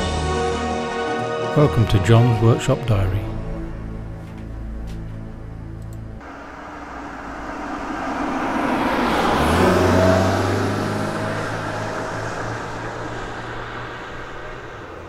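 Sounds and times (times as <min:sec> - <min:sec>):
vehicle driving past: 0:03.5 - 0:15.0.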